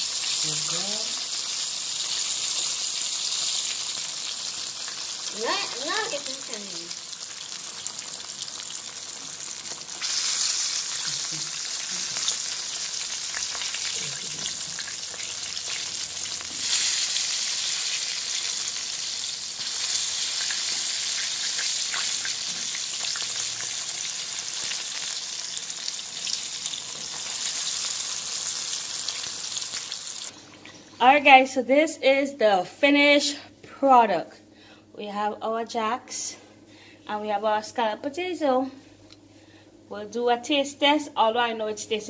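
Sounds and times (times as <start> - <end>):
fish frying in hot oil: 0.0 - 30.3.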